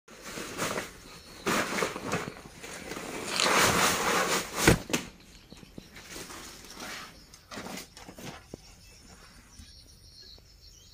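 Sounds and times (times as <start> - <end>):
bag crinkling and rustling: 0.1 - 8.5.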